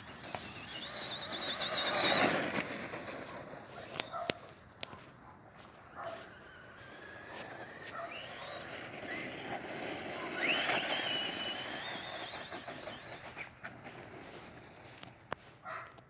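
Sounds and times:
electric motor whining: 0.0s - 3.1s, 5.8s - 15.1s
tyres hissing on loose dirt: 0.0s - 4.2s, 5.6s - 15.7s.

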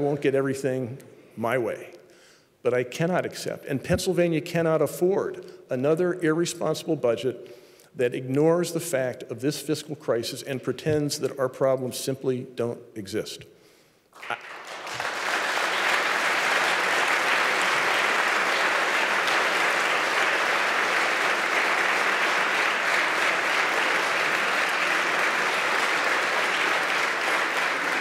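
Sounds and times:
large audience applauding: 14.2s - 28.0s.

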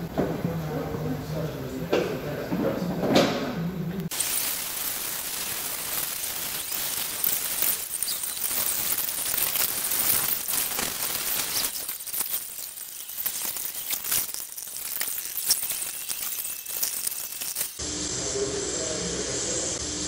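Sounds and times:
crackling clicks: 4.0s - 17.8s
plastic welder hissing: 4.1s - 17.8s.

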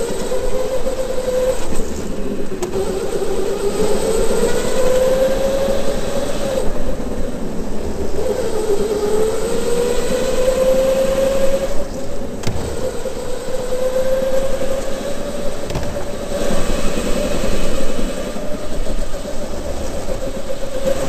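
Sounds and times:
electric motor whining: 0.0s - 21.0s.

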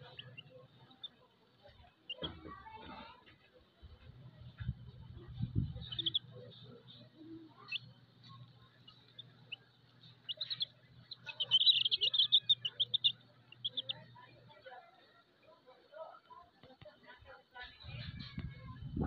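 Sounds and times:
chicks peeping: 0.0s - 3.4s, 4.0s - 14.6s.

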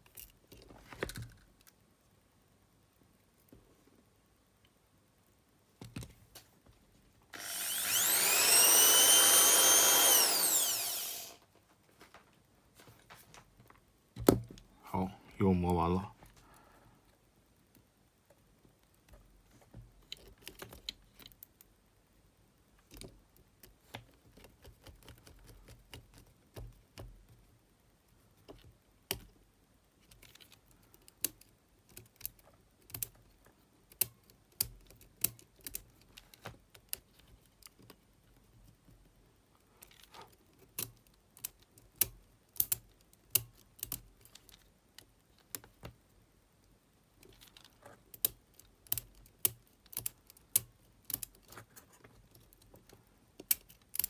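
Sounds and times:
sharp clicks and taps of metal parts: 40.7s - 46.0s, 47.2s - 51.5s.

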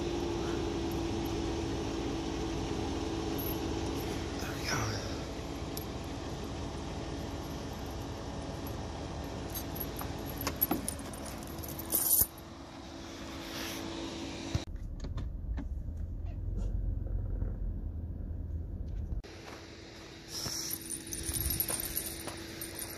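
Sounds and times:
van driving on snowy road: 0.0s - 22.9s
tire chains clinking and rattling: 3.2s - 12.6s, 20.3s - 22.9s.

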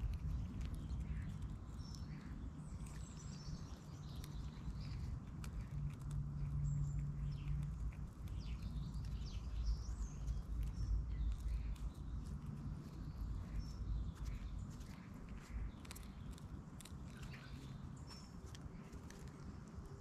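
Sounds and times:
small birds chirping: 0.0s - 20.0s
squirrel chewing seed clicks: 0.0s - 20.0s
steady low rumble: 0.0s - 20.0s.

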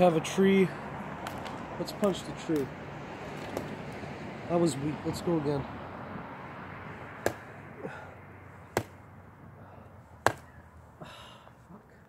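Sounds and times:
punches knocking tree trunk: 7.2s - 7.5s, 8.7s - 9.0s, 10.2s - 10.5s.

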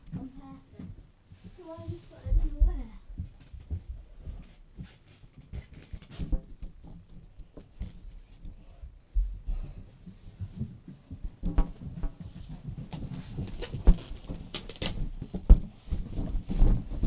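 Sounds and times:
balloons bumping against camera: 3.2s - 8.6s, 10.0s - 17.0s.

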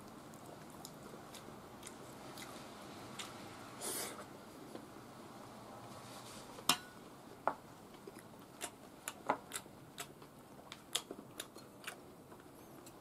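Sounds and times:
chewing: 0.3s - 2.6s, 8.1s - 13.0s.

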